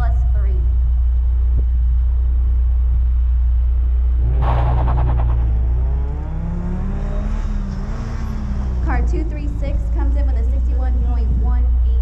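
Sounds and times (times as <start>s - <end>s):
car engine idling: 0.0s - 6.9s, 7.5s - 12.0s
car accelerating away: 4.1s - 10.5s
rising engine note: 4.2s - 9.9s.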